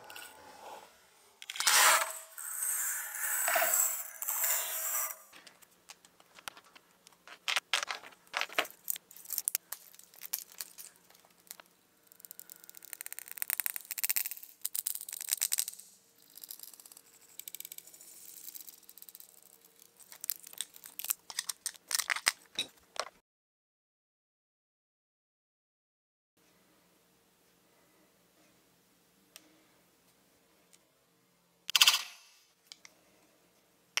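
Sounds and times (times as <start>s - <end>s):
plastic crackling and clicking: 5.3s - 15.7s, 19.3s - 23.2s.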